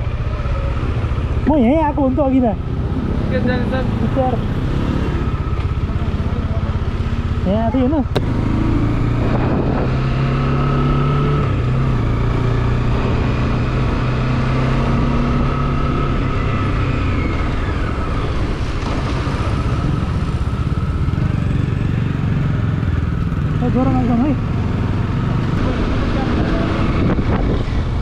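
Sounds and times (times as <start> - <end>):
motorcycle engine running: 0.0 - 28.0
riding wind rush: 8.2 - 21.9, 25.1 - 28.0.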